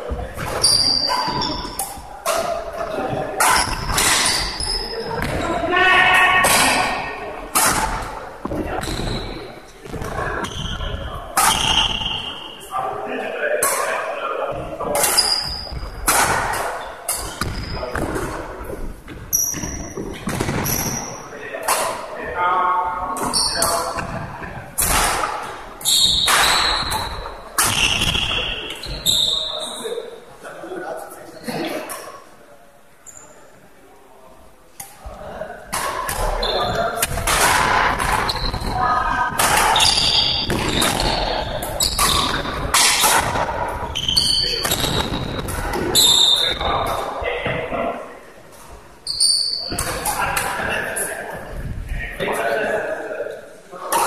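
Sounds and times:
shoes squeaking on wooden floor: 0:00.0 - 0:02.1, 0:02.8 - 0:05.9, 0:15.0 - 0:16.1, 0:19.1 - 0:21.2, 0:25.8 - 0:29.8, 0:36.2 - 0:37.0, 0:38.0 - 0:42.7
rackets hitting shuttlecocks: 0:00.4 - 0:05.4, 0:06.4 - 0:12.3, 0:14.8 - 0:21.0, 0:23.2 - 0:28.9, 0:37.0 - 0:47.1
racket striking shuttlecock: 0:39.3 - 0:43.5.

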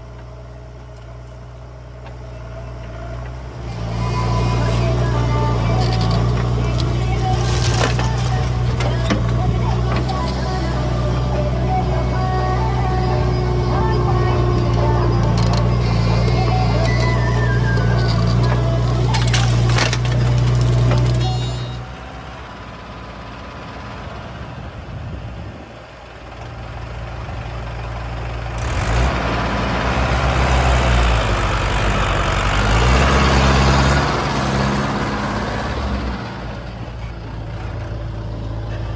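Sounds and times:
diesel engine revving: 0:00.0 - 0:38.9
diesel engine running: 0:00.0 - 0:38.9.

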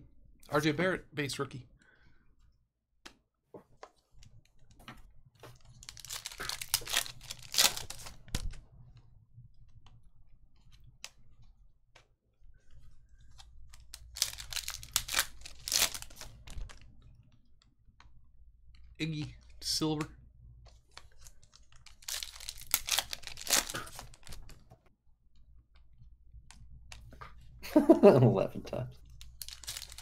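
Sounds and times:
foil wrappers crinkling: 0:05.6 - 0:08.5, 0:13.7 - 0:16.8, 0:21.0 - 0:24.6, 0:29.2 - 0:30.0.

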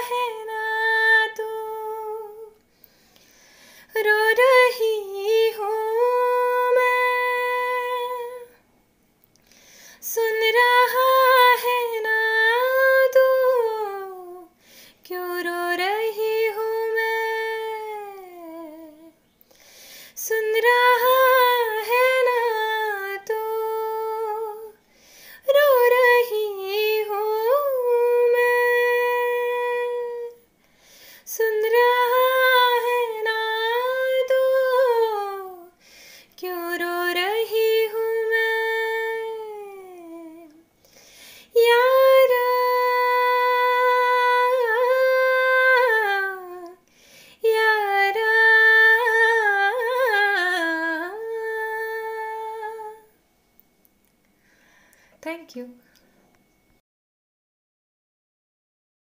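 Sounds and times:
woman singing unaccompanied: 0:00.0 - 0:02.6, 0:03.8 - 0:08.6, 0:10.0 - 0:19.2, 0:20.1 - 0:24.8, 0:25.4 - 0:30.5, 0:31.3 - 0:35.8, 0:36.4 - 0:40.7, 0:41.5 - 0:46.8, 0:47.4 - 0:53.2.

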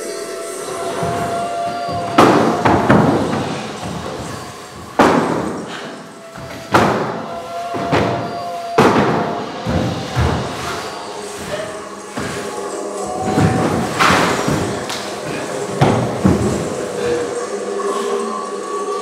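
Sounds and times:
background music with held tone: 0:00.0 - 0:19.0
wooden thuds on stage floor: 0:01.0 - 0:05.8, 0:06.4 - 0:10.8.

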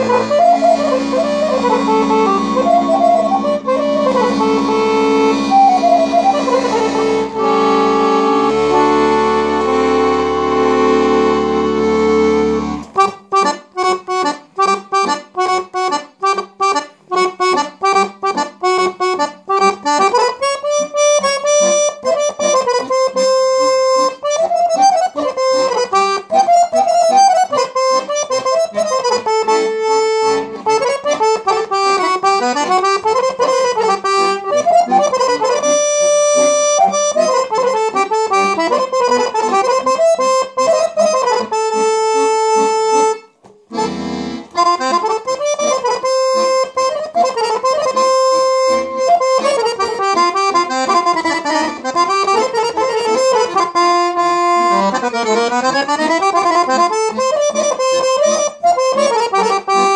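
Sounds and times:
piano accordion folk tune: 0:00.0 - 0:59.9.

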